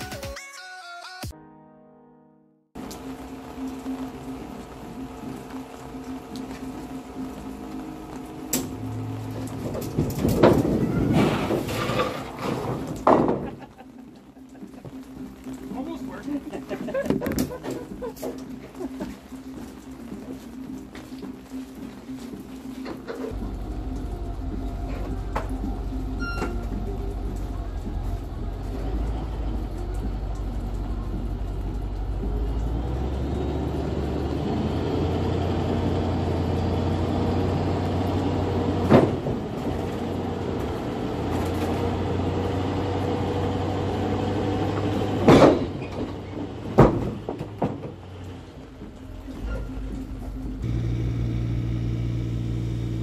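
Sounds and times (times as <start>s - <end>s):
wood sliding onto gravel: 9.5s - 13.5s
truck engine running: 23.1s - 53.0s.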